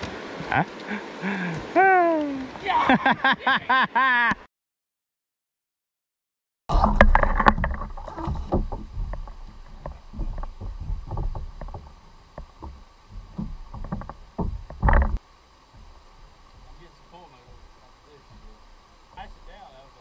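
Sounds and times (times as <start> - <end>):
gear knocking on plastic kayak: 6.8 - 19.3.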